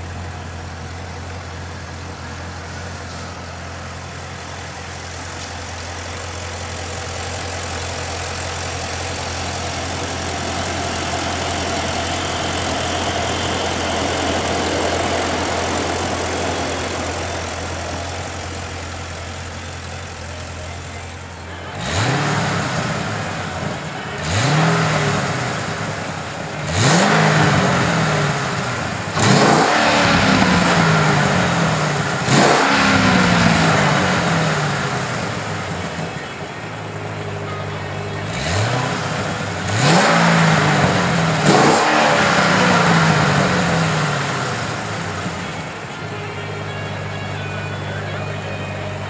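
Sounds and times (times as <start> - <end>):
car engine idling and revving: 0.0 - 49.0.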